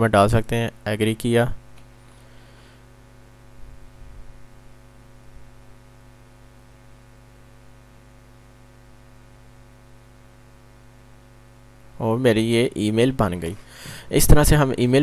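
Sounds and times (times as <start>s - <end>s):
electrical mains hum: 0.0s - 15.0s
soft low rumbles: 3.3s - 6.7s.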